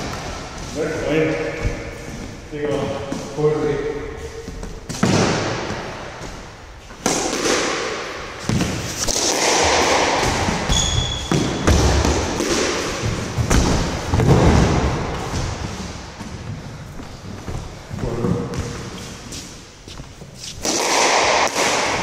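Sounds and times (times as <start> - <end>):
squash ball hitting rackets and walls: 0.0 - 22.0
shoe squeak on court floor: 10.7 - 11.6.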